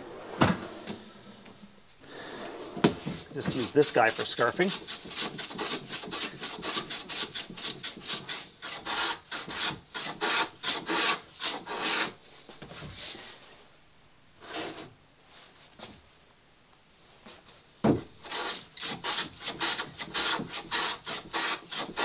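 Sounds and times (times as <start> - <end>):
hand plane shaving wood: 3.4 - 12.2, 18.2 - 22.0.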